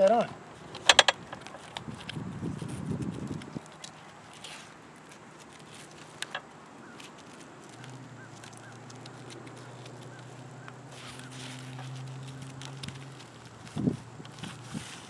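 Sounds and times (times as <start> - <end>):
small birds chirping: 0.0 - 15.0
sharp clicks: 0.1 - 2.2, 6.0 - 7.1.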